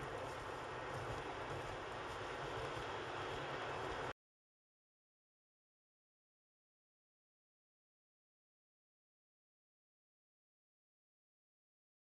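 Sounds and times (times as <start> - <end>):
steady rushing noise: 0.0 - 4.1.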